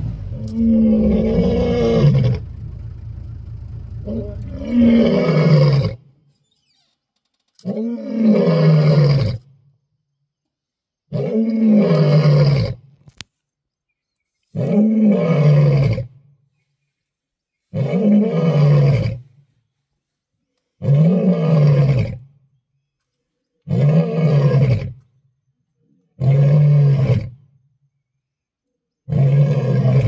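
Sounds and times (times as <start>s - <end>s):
lion roaring: 0.0s - 6.0s, 29.1s - 30.0s.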